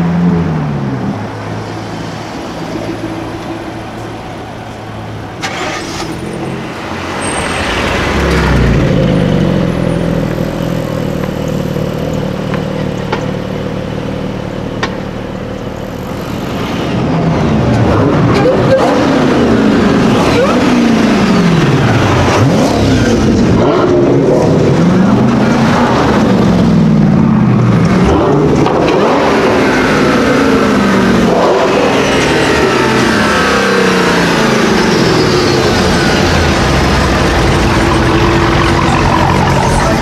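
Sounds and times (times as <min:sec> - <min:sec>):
car engine revving: 0:00.0 - 0:40.0.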